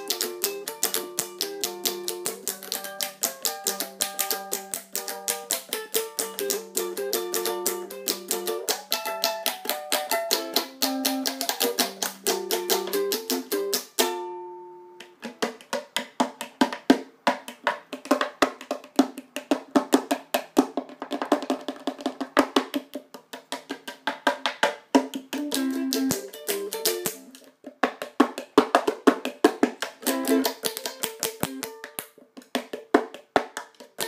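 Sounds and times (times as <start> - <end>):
ukulele picked notes: 0.0 - 15.4, 25.2 - 27.5, 30.0 - 32.0
fast ukulele strumming: 0.0 - 34.0.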